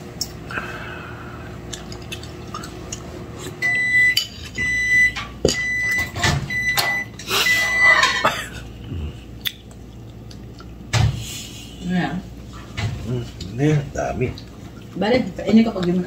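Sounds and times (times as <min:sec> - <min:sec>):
high electronic beeps: 0:03.6 - 0:08.0.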